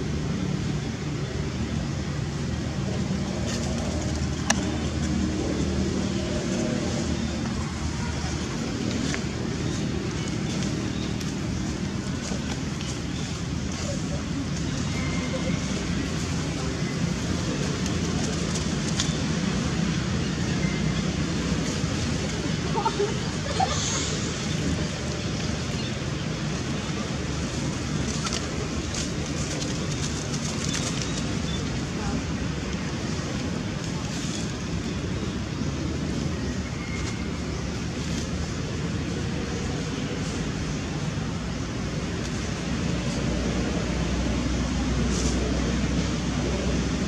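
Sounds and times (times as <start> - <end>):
outdoor background rumble: 0.0 - 47.0
faint crackling rustles: 22.8 - 35.6.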